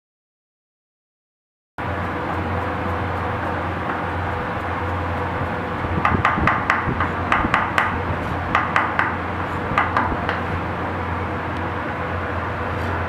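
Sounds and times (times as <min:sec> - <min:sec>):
steady background hum: 0:01.8 - 0:13.0
cleaver chopping on wooden block: 0:06.0 - 0:10.5.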